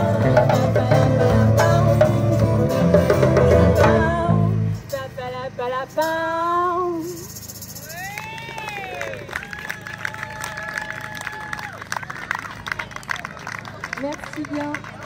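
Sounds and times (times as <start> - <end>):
person singing: 0.0 - 7.0
guitar: 0.0 - 7.4.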